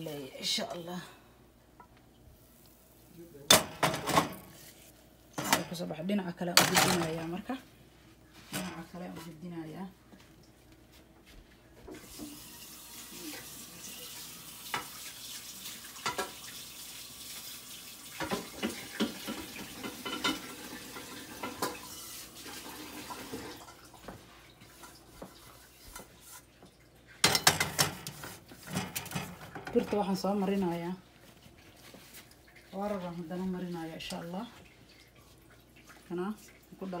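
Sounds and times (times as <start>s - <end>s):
dishes clattering: 3.5s - 4.5s, 5.4s - 5.9s, 6.6s - 7.4s, 18.2s - 22.0s, 27.2s - 30.2s
kitchenware clinking: 3.5s - 4.6s, 5.4s - 5.9s, 6.5s - 7.5s, 18.2s - 22.0s, 27.2s - 30.2s.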